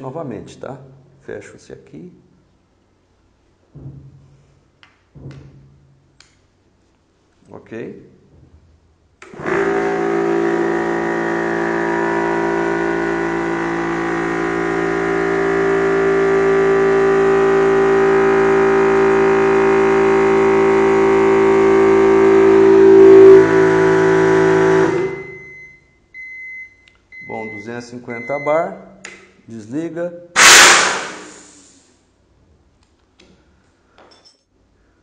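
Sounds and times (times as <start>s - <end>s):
air compressor running: 9.2s - 25.6s, 30.4s - 31.9s
high beeping tone: 22.3s - 23.8s.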